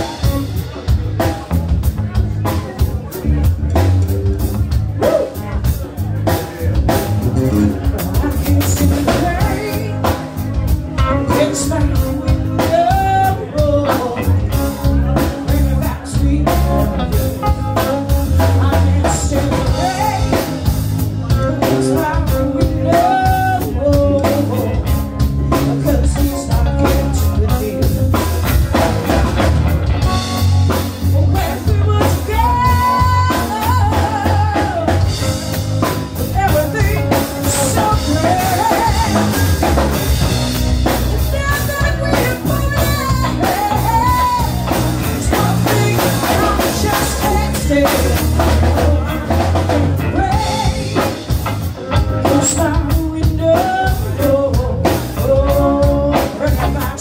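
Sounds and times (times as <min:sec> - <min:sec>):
drum kit: 0:00.0 - 0:57.0
electric bass: 0:00.0 - 0:57.0
electric guitar: 0:00.0 - 0:57.0
woman singing: 0:08.1 - 0:10.2, 0:11.0 - 0:20.6, 0:21.3 - 0:24.8, 0:31.1 - 0:35.4, 0:36.3 - 0:39.9, 0:41.2 - 0:51.2, 0:52.2 - 0:57.0.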